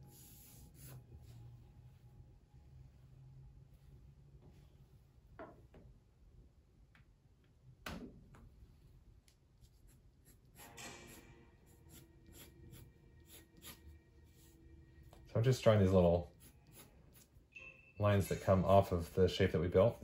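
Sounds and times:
pencil scratching on paper: 0:00.0 - 0:01.3, 0:09.6 - 0:14.6, 0:15.9 - 0:17.4.

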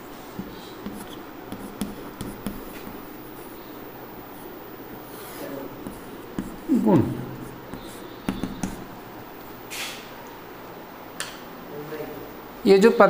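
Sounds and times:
chalk scraping on chalkboard: 0:00.4 - 0:03.6, 0:04.4 - 0:08.9
chalk tapping on chalkboard: 0:00.4 - 0:03.6, 0:05.2 - 0:09.0.

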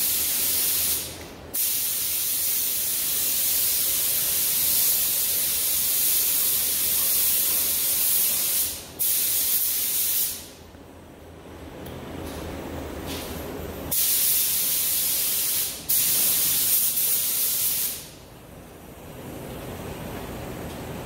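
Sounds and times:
paint spray gun hissing: 0:00.0 - 0:10.5, 0:13.9 - 0:18.1.

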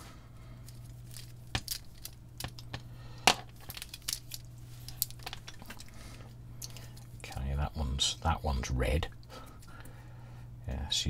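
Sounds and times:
steady low hum: 0:00.0 - 0:11.0
cable rustling and clicking: 0:00.6 - 0:07.4.

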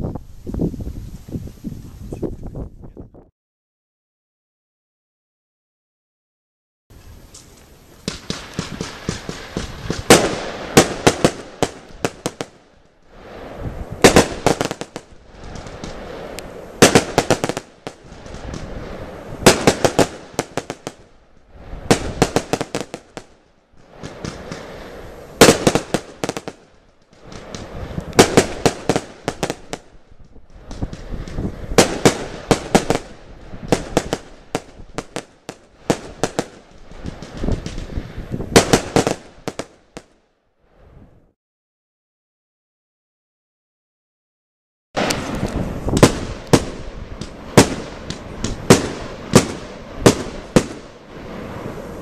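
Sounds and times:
firework rushing hiss: 0:07.0 - 0:40.1, 0:45.0 - 0:52.0
firework cracks and bangs: 0:07.3 - 0:40.2, 0:45.0 - 0:52.0.

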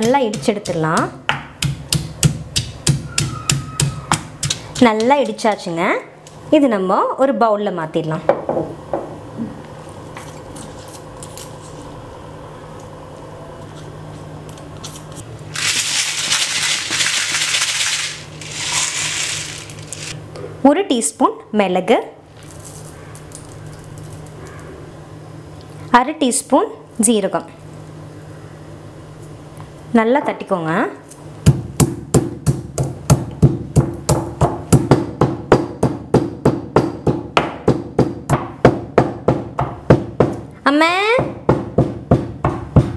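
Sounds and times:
stone pestle pounding in mortar: 0:00.0 - 0:05.5, 0:31.4 - 0:40.5, 0:41.2 - 0:42.9.

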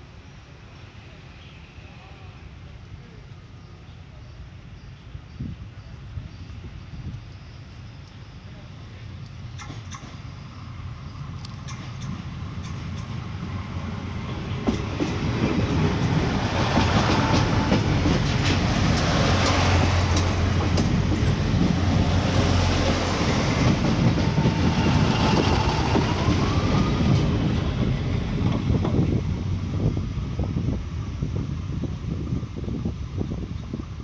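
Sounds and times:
train rumble and hum: 0:00.0 - 0:34.0
train wheels clattering on rails: 0:09.5 - 0:10.4, 0:11.5 - 0:29.4.

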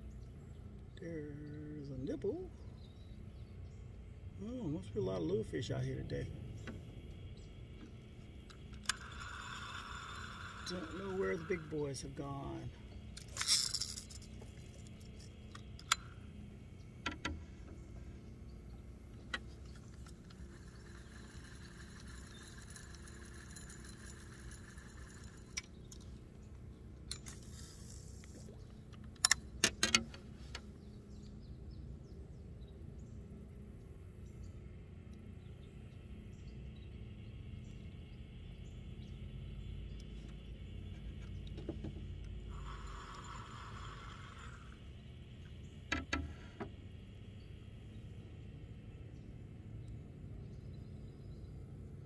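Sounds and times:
low steady rumble: 0:00.0 - 0:52.0
fishing reel clicks and taps: 0:08.4 - 0:11.6, 0:42.5 - 0:44.6.

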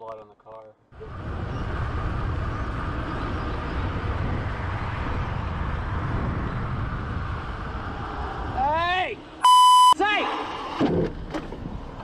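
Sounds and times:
wind rushing over microphone: 0:01.0 - 0:09.4
bicycle road noise: 0:01.0 - 0:09.6.

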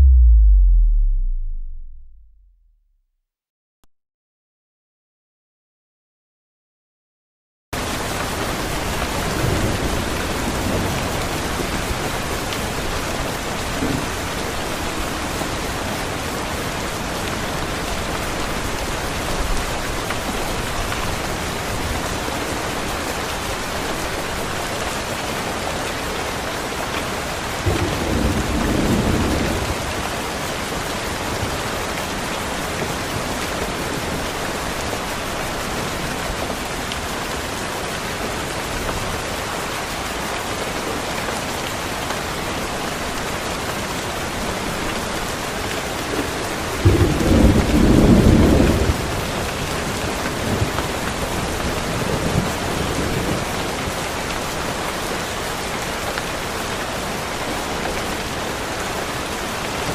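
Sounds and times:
thunder rumbling: 0:00.0 - 0:02.7
heavy rain: 0:07.8 - 0:59.9.

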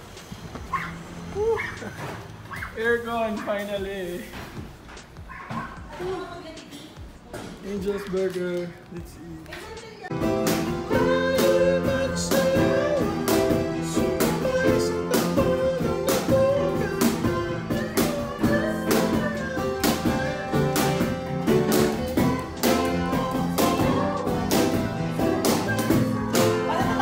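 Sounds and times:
guitar song with steady beat: 0:10.1 - 0:27.0.

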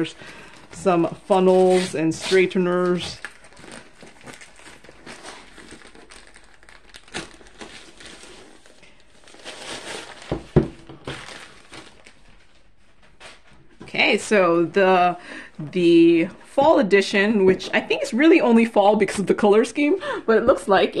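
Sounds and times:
plastic bag crinkling: 0:00.0 - 0:13.4.

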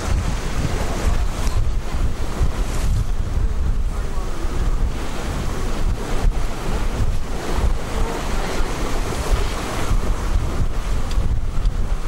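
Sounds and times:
rush of wind and water: 0:00.0 - 0:12.0
wind rumbling on microphone: 0:00.0 - 0:12.0.

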